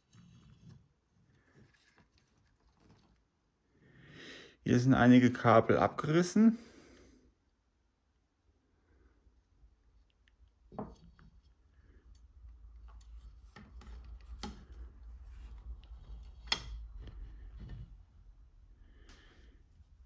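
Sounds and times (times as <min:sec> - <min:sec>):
handling clicks taps and rubbing: 0:12.8 - 0:17.8.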